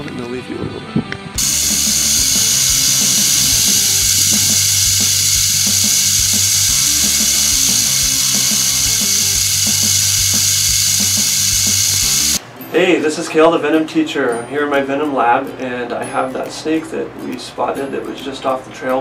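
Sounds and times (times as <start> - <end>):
rattlesnake rattling: 1.4 - 12.4.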